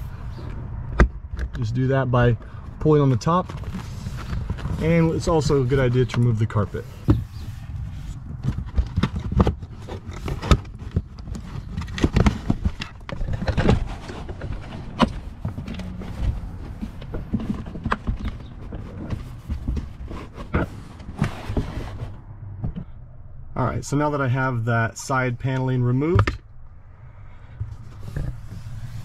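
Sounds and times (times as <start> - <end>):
carpet pulled back: 13.6 - 22.2.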